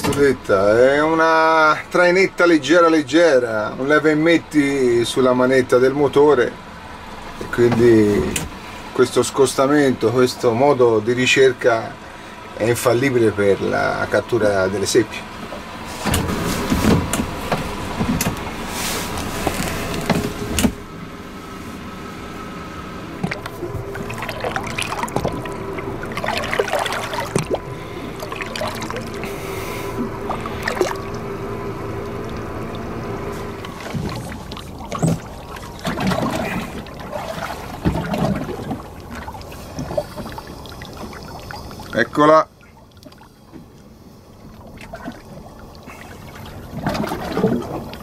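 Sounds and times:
outboard motor running slowly: 0.0 - 48.0
water splashing against hull: 23.1 - 48.0.

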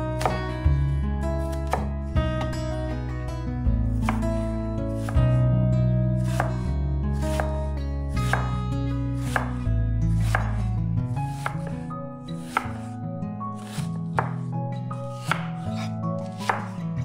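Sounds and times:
background music with bass: 0.0 - 17.0
knife chopping on cutting board: 0.2 - 0.5, 1.4 - 2.6, 4.0 - 4.2, 5.0 - 5.2, 6.2 - 6.6, 7.2 - 7.6, 8.2 - 8.6, 9.2 - 10.7, 11.3 - 11.8, 12.4 - 12.9, 13.6 - 14.5, 15.2 - 16.8.

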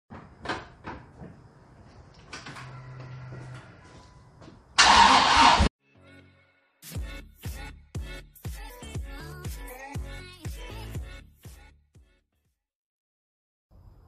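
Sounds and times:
engine firing loudly: 4.8 - 5.7.

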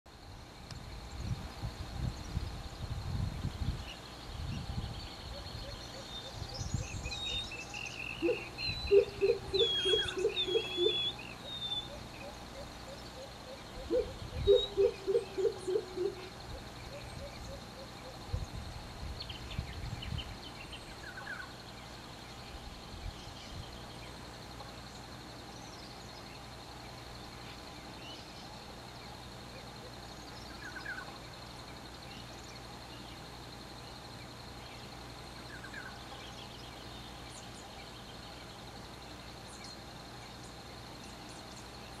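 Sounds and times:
bird calling deep notes: 5.4 - 18.4.

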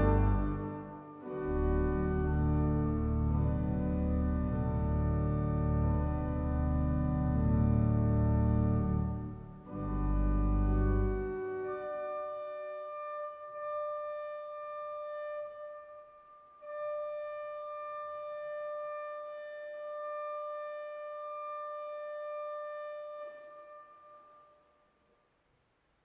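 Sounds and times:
pipe organ holding high note: 0.0 - 12.2.

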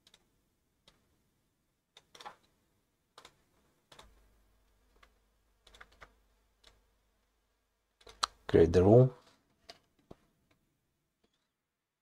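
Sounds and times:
mouse and keyboard clicks: 1.9 - 2.5, 8.0 - 8.4.

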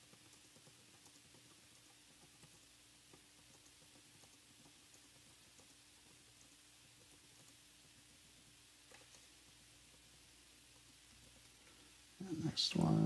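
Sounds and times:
keyboard typing: 0.0 - 7.6
faint hum and hiss: 0.0 - 13.0.

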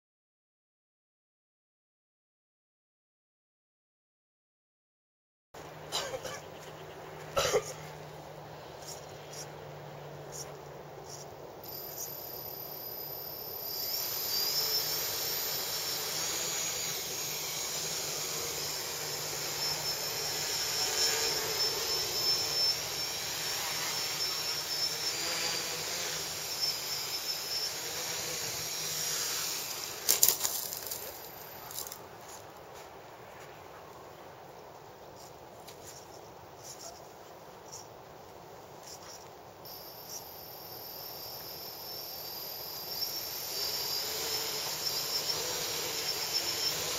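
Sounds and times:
drone motors whining: 10.2 - 32.0, 39.1 - 46.9.

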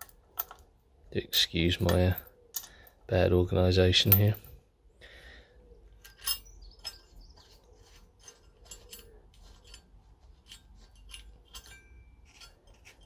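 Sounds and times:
light metallic clicks and clinks: 1.3 - 3.1, 4.0 - 4.6, 6.0 - 7.2, 8.2 - 13.0.

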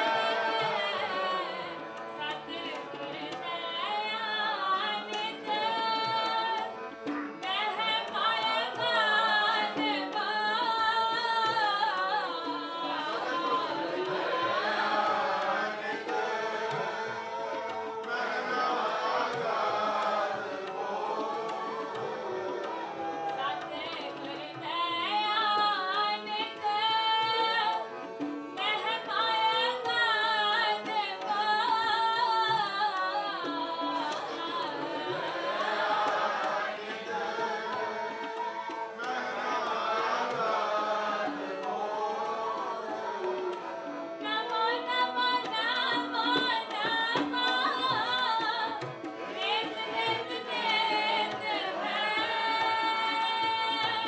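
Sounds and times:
woman singing: 0.0 - 14.6, 23.4 - 35.3, 44.2 - 54.0
group of voices singing: 0.0 - 26.6, 27.8 - 54.0
harmonium: 0.0 - 54.0
tabla: 0.0 - 54.0.

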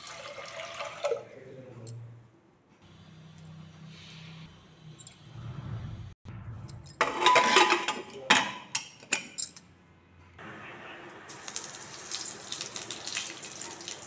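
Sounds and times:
metal lid scraping against rim: 7.0 - 8.0.

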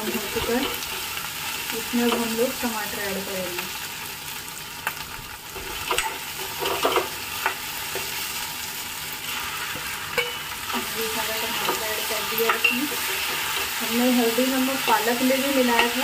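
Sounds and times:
onions sizzling in a pan: 0.0 - 16.0
spoon scraping a pan: 9.3 - 16.0.

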